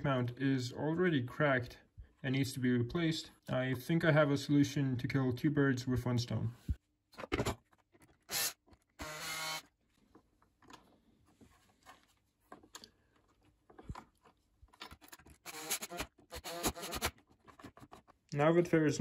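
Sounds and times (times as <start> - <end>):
cordless impact driver running: 8.3 - 9.7, 15.4 - 17.1
screws and wooden parts clicking: 13.8 - 18.2.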